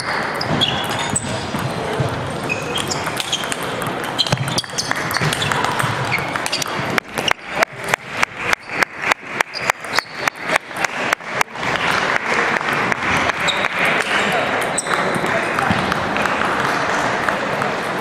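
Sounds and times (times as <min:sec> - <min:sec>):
table tennis ball clicks: 0:00.0 - 0:07.7
ball bouncing: 0:00.0 - 0:10.9, 0:12.6 - 0:17.8
hubbub of hall: 0:00.0 - 0:18.0.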